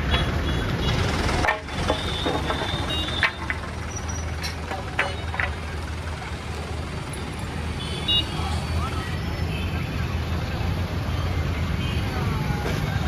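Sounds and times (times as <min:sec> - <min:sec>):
motorbike engines rumbling: 0:00.0 - 0:13.0
road noise: 0:00.0 - 0:13.0.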